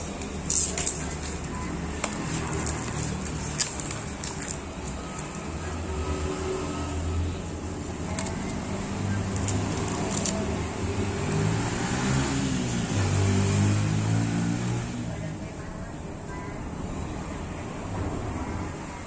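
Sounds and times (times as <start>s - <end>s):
plastic wrapping crinkling: 0.0s - 5.6s, 9.3s - 10.6s.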